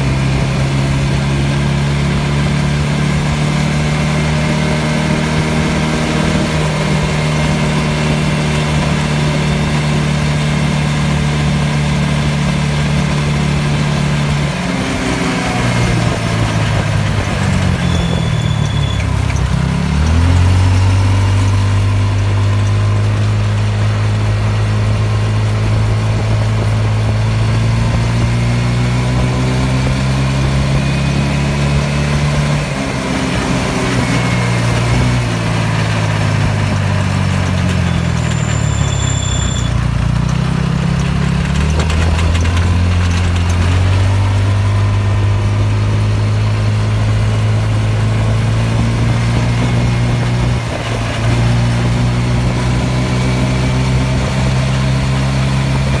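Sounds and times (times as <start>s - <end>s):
go-kart engine running: 0.0s - 56.0s
wind and road noise: 0.0s - 56.0s.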